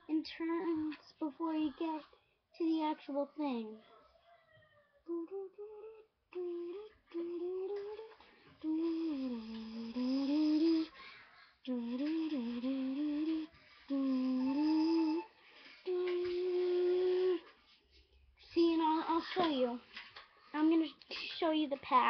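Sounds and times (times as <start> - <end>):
girl humming a slow tune: 5.1 - 11.0, 11.6 - 17.6.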